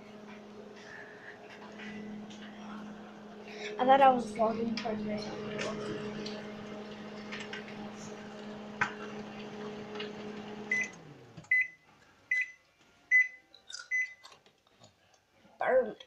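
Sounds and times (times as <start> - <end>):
microwave oven humming: 0.0 - 11.8.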